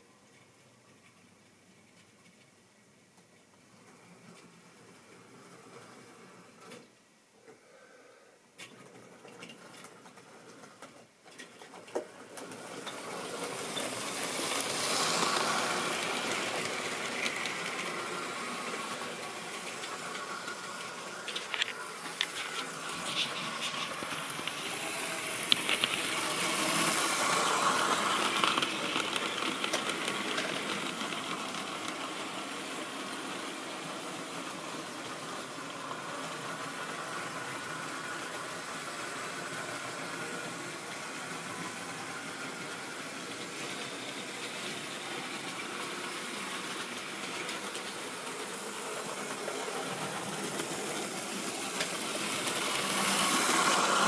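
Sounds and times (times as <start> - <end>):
wheels rattling over rails: 8.6 - 54.0
model train motor whirring: 11.7 - 54.0.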